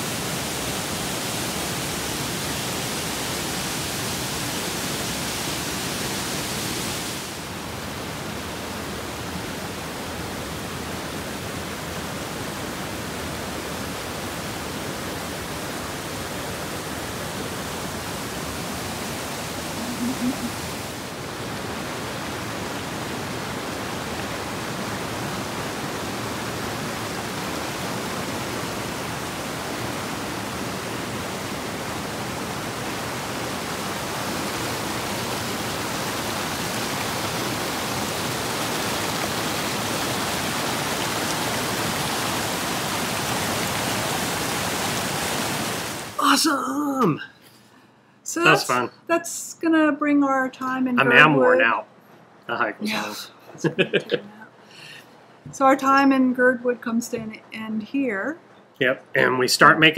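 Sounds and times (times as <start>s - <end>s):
water rushing through rocky gorge: 0.0s - 46.4s.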